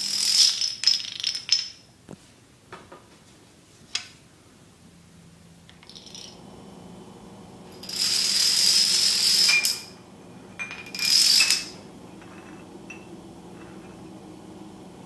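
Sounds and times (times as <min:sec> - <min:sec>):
plastic dominoes clattering on concrete: 0:00.0 - 0:01.8, 0:11.0 - 0:11.7.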